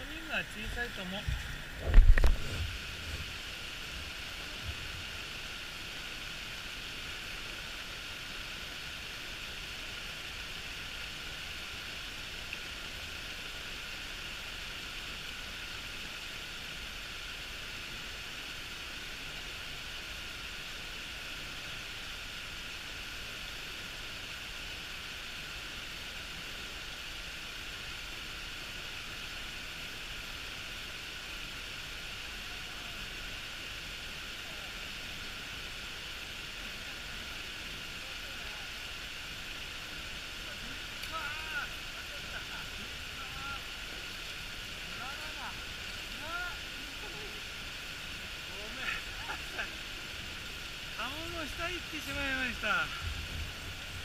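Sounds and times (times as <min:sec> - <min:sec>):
stream water rushing over rocks: 0:00.0 - 0:54.0.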